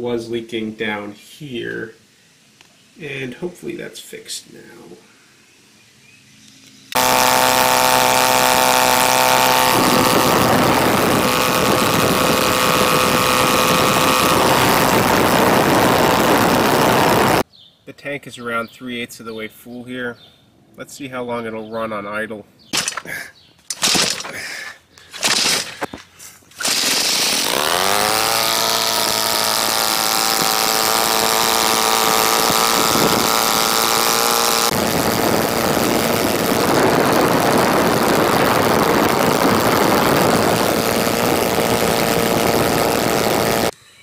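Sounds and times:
model plane engine idling: 0:07.0 - 0:17.4, 0:26.6 - 0:43.8
short irregular noises: 0:22.7 - 0:43.7.

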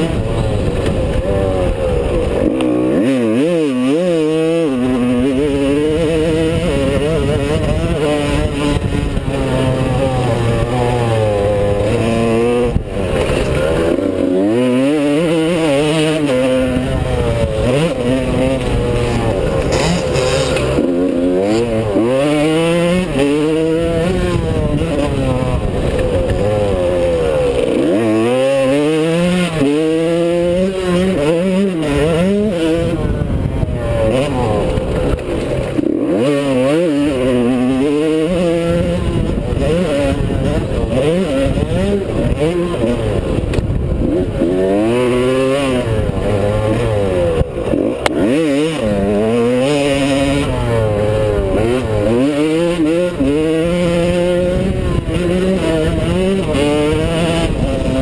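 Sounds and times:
motocross engine revving: 0:00.0 - 0:58.0.

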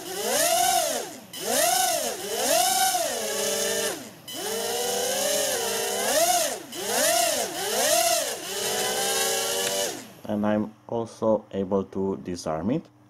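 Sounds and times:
quadcopter motors whining: 0:00.0 - 0:10.3.

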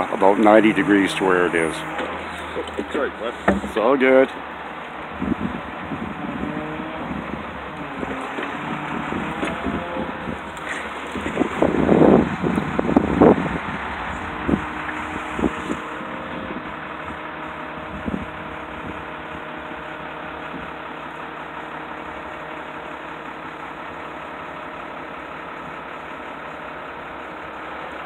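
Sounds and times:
truck engine idling: 0:00.0 - 0:28.0
short clunks: 0:01.1 - 0:04.4.

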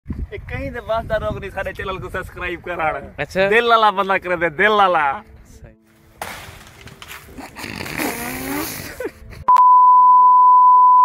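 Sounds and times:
high-pitched test tone beep: 0:09.5 - 0:11.0.

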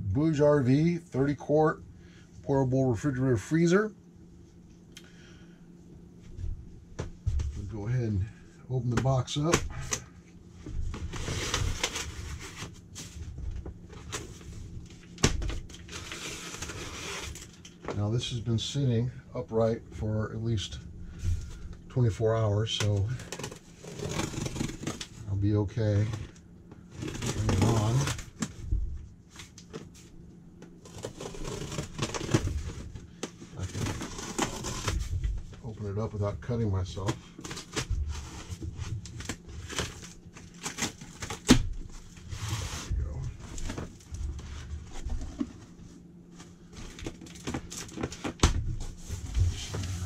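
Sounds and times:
cardboard scraping and rustling: 0:10.6 - 0:14.7, 0:15.3 - 0:17.6, 0:22.8 - 0:25.2, 0:25.8 - 0:30.1, 0:30.8 - 0:50.0
plastic strap scraping cardboard: 0:15.9 - 0:17.5, 0:22.8 - 0:25.2, 0:25.9 - 0:28.4, 0:30.8 - 0:35.2
knife slitting packing tape: 0:23.2 - 0:25.0, 0:30.8 - 0:32.4.

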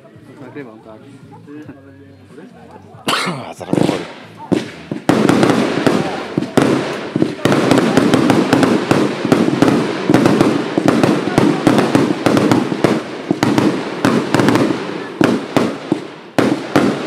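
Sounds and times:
firework shots: 0:03.1 - 0:17.0
firework crackle: 0:03.6 - 0:17.0.

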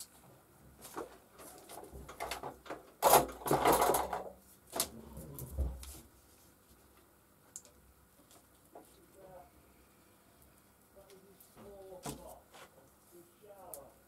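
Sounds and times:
wooden pieces knocking and scraping: 0:00.8 - 0:04.9.

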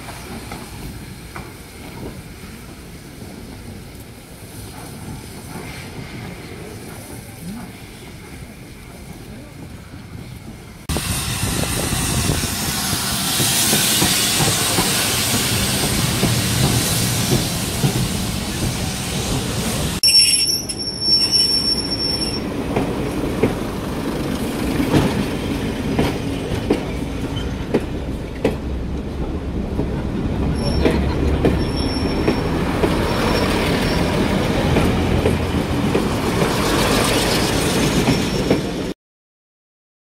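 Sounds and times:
diesel train engines rumbling: 0:00.0 - 0:38.9
high-pitched wheel squeal: 0:20.0 - 0:22.4, 0:31.6 - 0:34.2.

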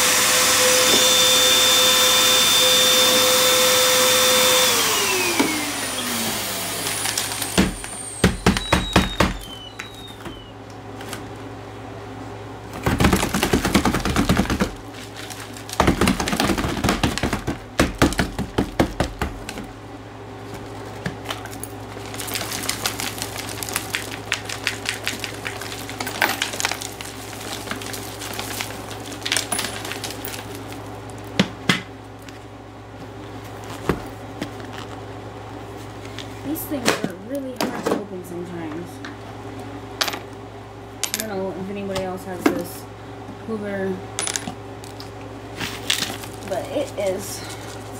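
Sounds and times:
vacuum cleaner running: 0:00.0 - 0:11.3
debris rattling up vacuum nozzle: 0:21.4 - 0:30.8.

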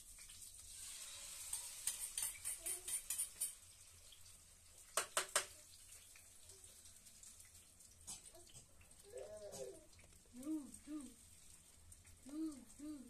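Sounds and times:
egg sizzling in hot oil: 0:00.0 - 0:09.1, 0:11.2 - 0:12.3.

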